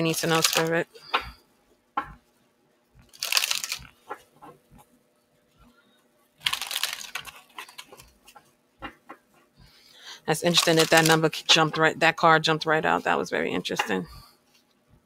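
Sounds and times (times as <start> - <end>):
cards shuffling: 0.1 - 0.7, 3.0 - 4.6, 6.4 - 8.4, 10.5 - 11.2.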